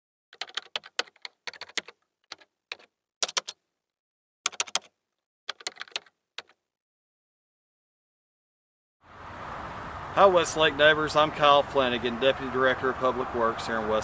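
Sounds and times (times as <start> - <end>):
computer keyboard typing: 0.4 - 3.6, 4.5 - 6.6.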